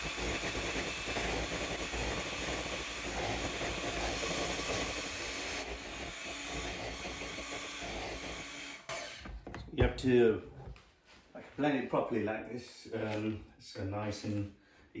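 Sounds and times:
electric hand mixer running: 0.0s - 9.4s.

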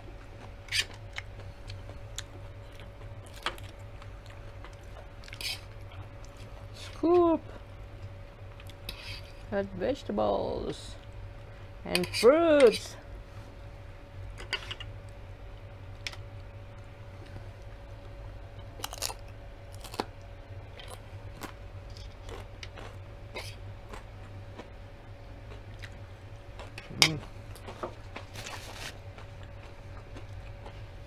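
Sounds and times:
faint steady hum: 0.0s - 31.0s
chips crunching while chewed: 18.8s - 20.1s, 20.8s - 24.7s.

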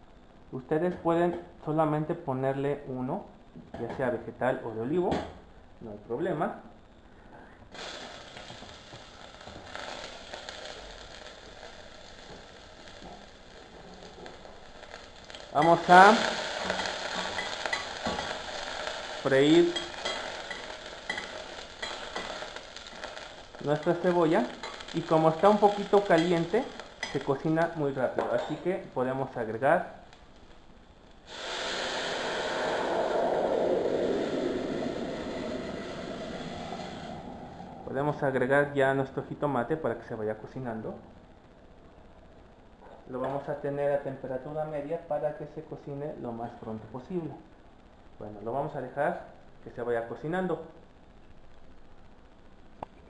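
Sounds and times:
hot oil sizzling: 7.7s - 39.8s.

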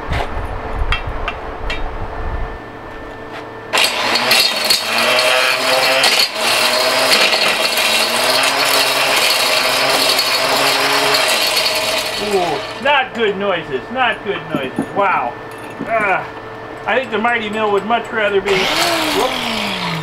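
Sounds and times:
ore crusher rattling and clattering: 3.7s - 13.4s, 15.6s - 20.0s.

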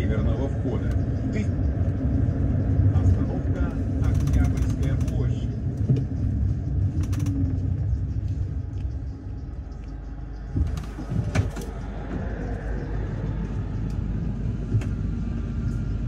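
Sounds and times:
bus engine and road rumble: 0.0s - 16.0s
sharp rattles: 2.1s - 8.2s.

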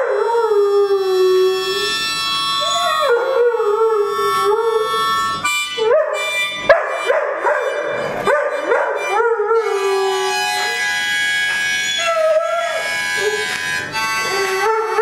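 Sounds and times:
harmonica playing chords: 0.7s - 15.0s
dog howling and yelping: 2.6s - 4.8s, 9.0s - 10.4s.

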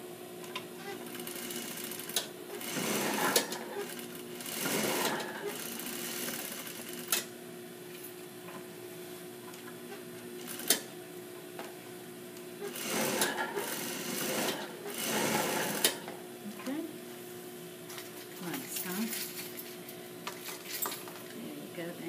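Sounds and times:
sewing machine stitching: 0.9s - 7.2s, 12.6s - 16.0s.

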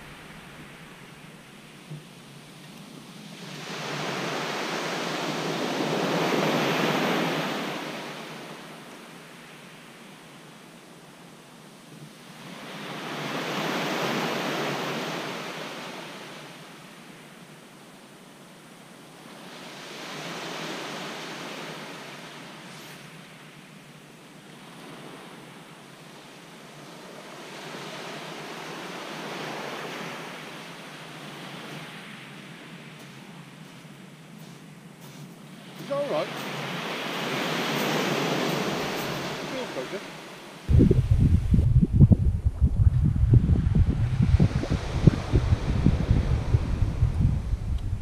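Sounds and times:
wave breaking on shingle beach: 35.7s - 40.4s.

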